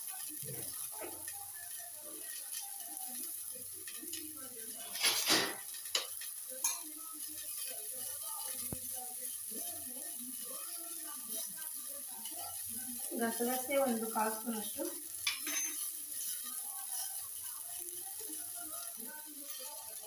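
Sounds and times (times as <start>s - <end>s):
steel containers and utensils knocking: 15.2s - 15.8s.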